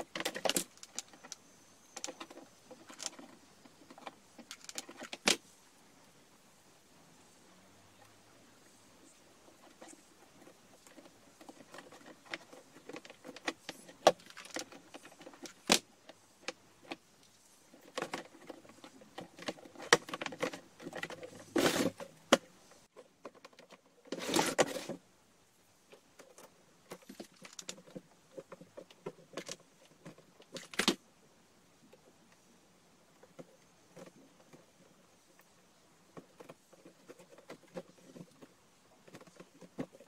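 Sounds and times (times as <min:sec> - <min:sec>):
plastic basket rattling: 0:00.0 - 0:05.4, 0:09.6 - 0:15.9, 0:17.7 - 0:22.5, 0:36.2 - 0:40.0.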